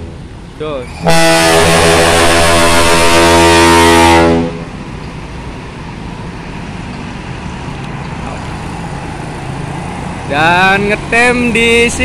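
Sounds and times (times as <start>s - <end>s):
bus engine rumbling: 0.0s - 12.0s
bus air horn blast: 1.0s - 4.7s.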